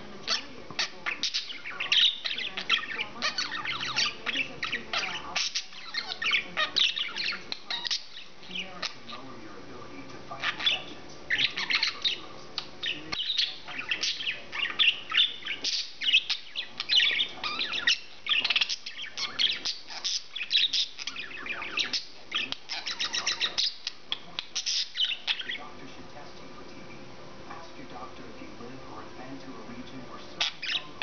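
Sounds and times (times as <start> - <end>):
budgerigar warbling and chattering: 0.0 - 9.3, 10.3 - 25.7, 30.3 - 31.0.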